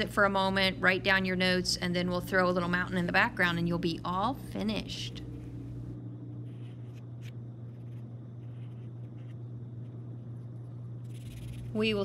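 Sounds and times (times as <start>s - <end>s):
steady low hum: 0.0s - 12.0s
pencil scratching on paper: 6.4s - 9.4s, 11.1s - 11.9s.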